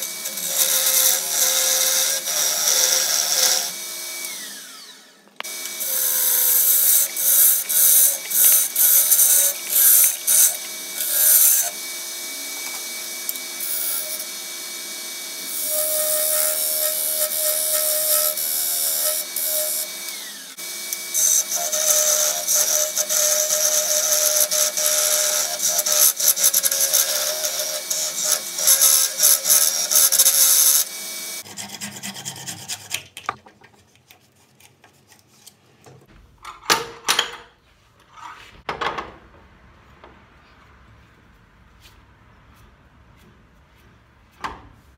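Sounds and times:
hand saw cutting wood: 0.0s - 11.8s, 15.3s - 33.4s
wood lathe whine: 0.0s - 31.8s
turning tool cutting wood: 0.0s - 33.4s.

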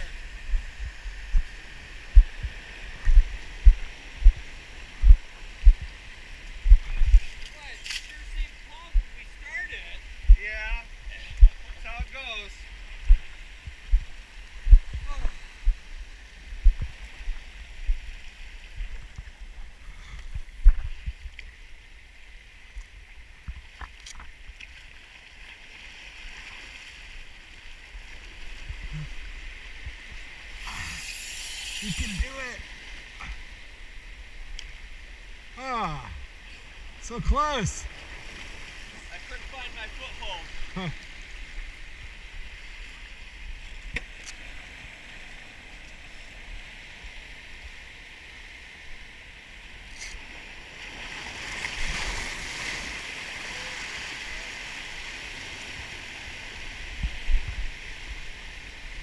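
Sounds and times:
surf hiss: 0.0s - 23.8s, 25.0s - 59.0s
dull low thuds of steps: 0.4s - 6.0s, 6.6s - 7.2s, 13.1s - 15.9s, 16.6s - 18.1s, 20.2s - 21.2s
waves washing over rocks: 25.6s - 34.0s, 35.0s - 59.0s.

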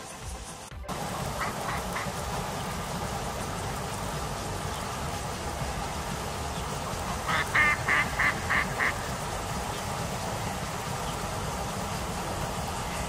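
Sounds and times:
duck quacking: 1.4s - 2.2s, 7.2s - 9.2s.

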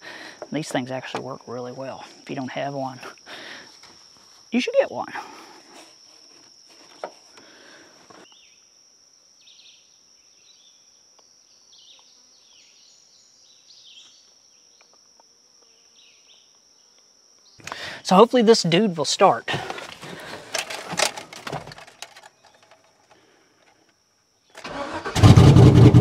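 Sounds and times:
light clicks and rustles: 19.5s - 24.0s.

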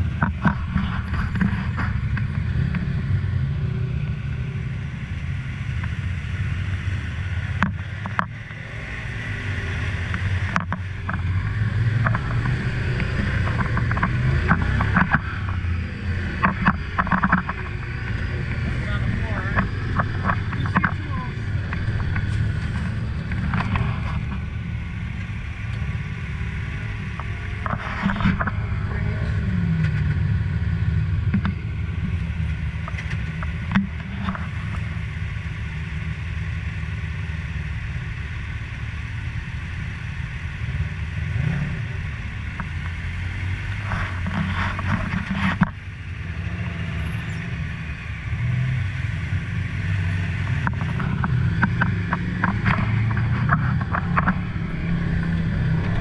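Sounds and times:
utility vehicle engine droning: 0.0s - 56.0s
knocks and rattles: 10.5s - 24.6s.

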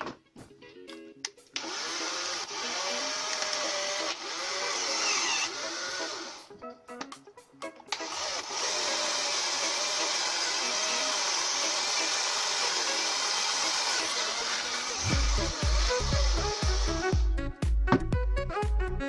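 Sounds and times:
drill whining into wood: 1.6s - 6.5s, 7.9s - 17.2s.

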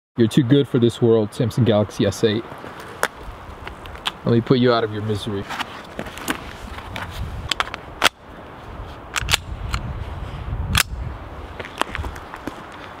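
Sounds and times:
pistol metallic clicks: 9.1s - 9.8s, 10.7s - 11.0s.

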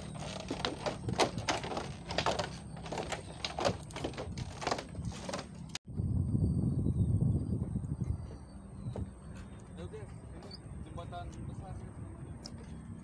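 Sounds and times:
footsteps on wooden bridge: 0.0s - 5.8s.

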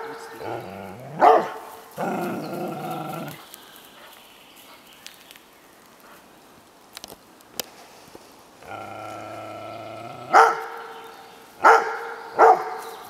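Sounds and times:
dog low vocal sound: 0.0s - 3.4s, 8.6s - 10.7s
faint clicks and snaps: 2.2s - 8.2s.

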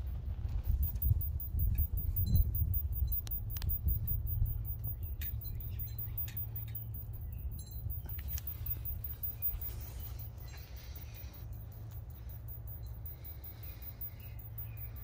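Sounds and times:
wind rumble on microphone: 0.0s - 6.3s.

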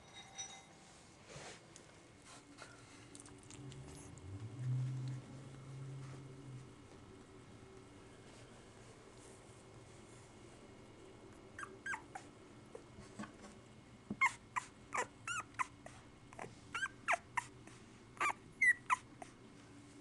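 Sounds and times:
puppies whimpering: 11.6s - 12.3s, 18.2s - 19.1s.

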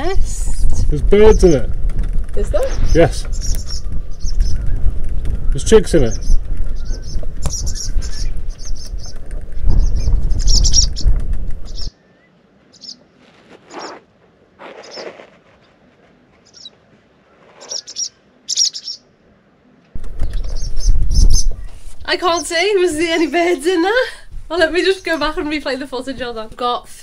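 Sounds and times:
wind buffeting microphone: 0.0s - 12.0s, 20.0s - 27.0s
bird chicks chirping: 0.0s - 13.0s, 16.4s - 16.8s, 17.6s - 19.1s, 20.0s - 23.4s.

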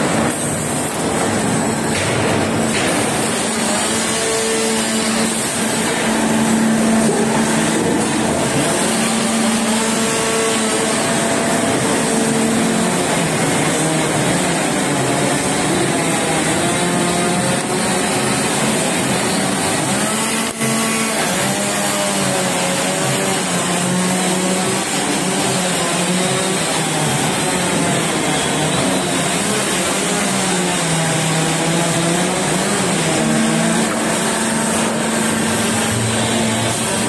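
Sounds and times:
veneer lathe machine din: 2.6s - 37.0s.

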